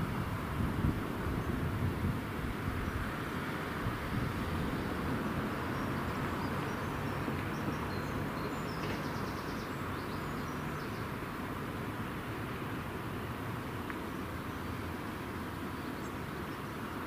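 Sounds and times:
small birds chirping: 0:05.6 - 0:11.2.

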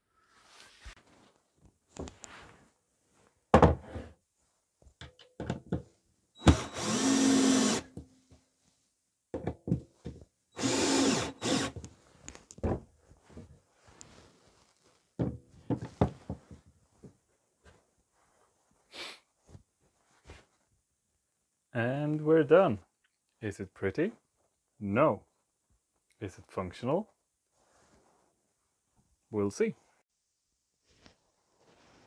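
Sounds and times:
cordless drill driving into wood: 0:06.4 - 0:08.0, 0:10.6 - 0:11.9.

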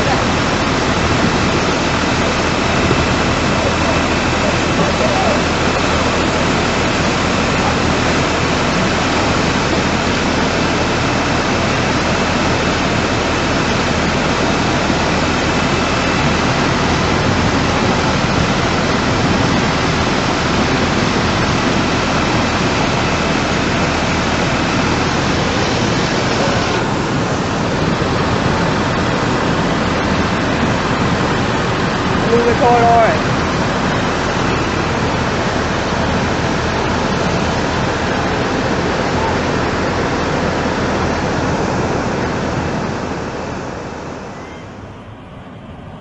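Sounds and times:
rushing floodwater: 0:00.0 - 0:46.0.

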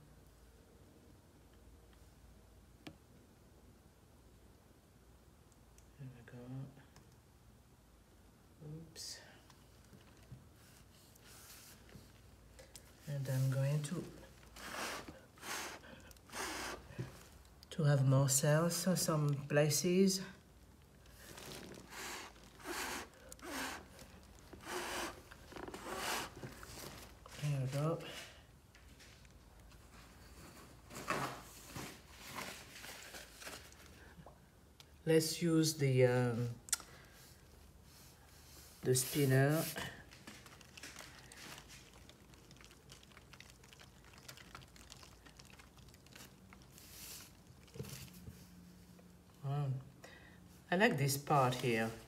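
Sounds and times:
soft rustle: 0:09.2 - 0:17.7, 0:18.7 - 0:34.3, 0:37.0 - 0:49.3
person blowing puffs of breath: 0:14.6 - 0:17.0, 0:21.9 - 0:24.0, 0:24.6 - 0:25.2
rapid ticking and pattering: 0:40.4 - 0:46.7.

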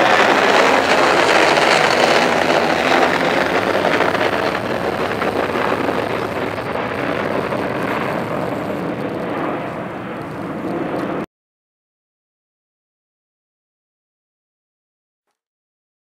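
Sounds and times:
jet engines roaring overhead: 0:00.0 - 0:11.3.

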